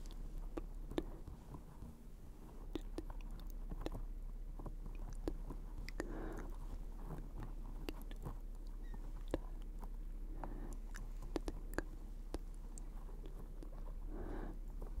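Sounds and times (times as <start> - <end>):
wet mouth clicks and smacks: 2.7 - 4.0, 10.8 - 13.8
breathy whisper: 5.1 - 8.4, 10.2 - 15.0.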